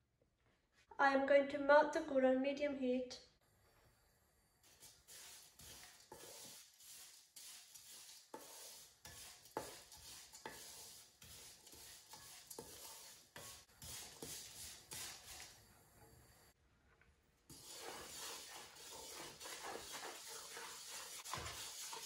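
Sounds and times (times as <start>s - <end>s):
wooden spatula scraping a pan: 4.7s - 15.6s, 17.5s - 22.0s.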